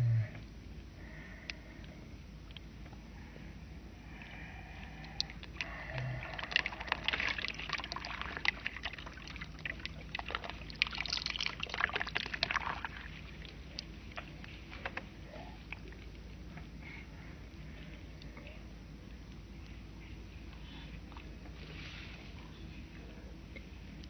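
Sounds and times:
water trickling into wet soil: 5.1s - 14.6s.

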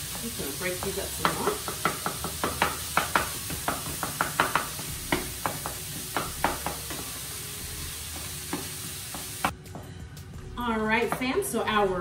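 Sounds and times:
food sizzling frying: 0.0s - 9.6s.

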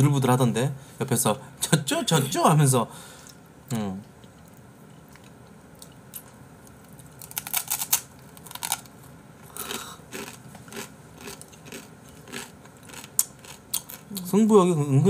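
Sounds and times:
chewing with crisp crunching: 9.5s - 14.4s.

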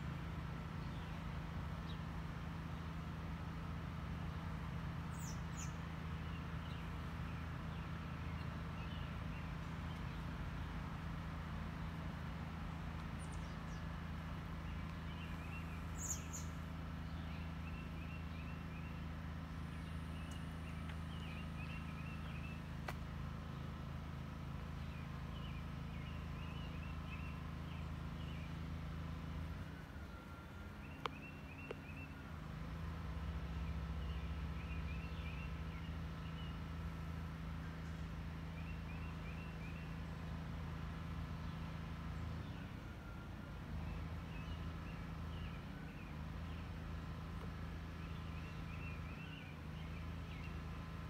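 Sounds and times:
small birds chirping: 0.0s - 51.0s
steady low hum: 0.0s - 51.0s
faint clicks: 20.2s - 21.0s.

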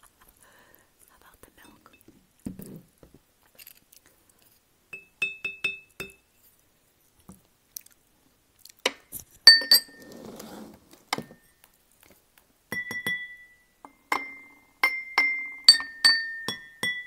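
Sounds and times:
glassware clinking: 4.9s - 6.2s, 9.4s - 10.2s, 12.7s - 17.0s.

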